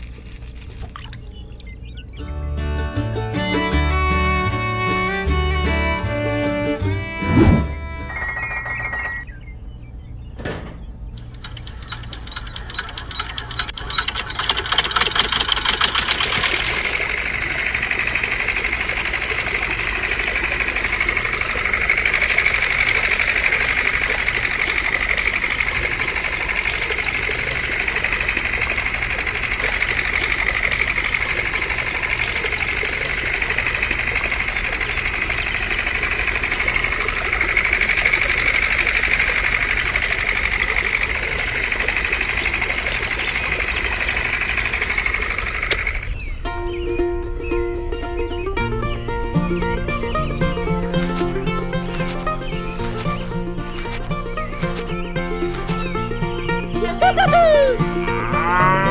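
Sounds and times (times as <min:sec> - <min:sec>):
small motor ticking and whirring: 0:00.0 - 0:01.9, 0:11.2 - 0:46.4, 0:49.7 - 0:57.3.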